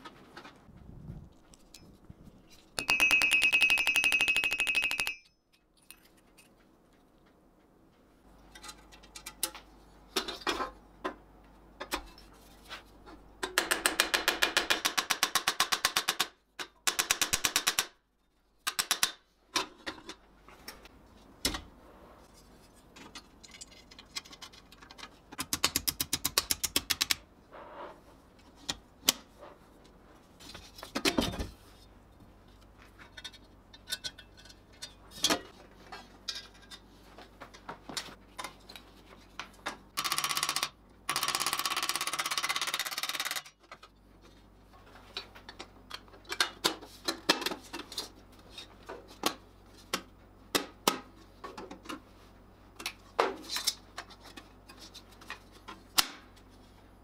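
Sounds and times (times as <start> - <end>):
clinks of steel on steel: 2.8 - 6.1.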